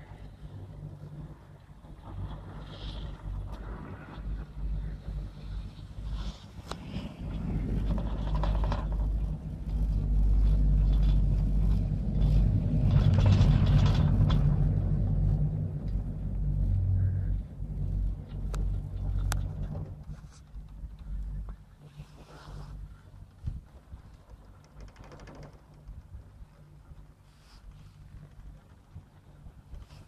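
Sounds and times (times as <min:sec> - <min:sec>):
chairlift mechanical rumble: 0:00.0 - 0:30.0.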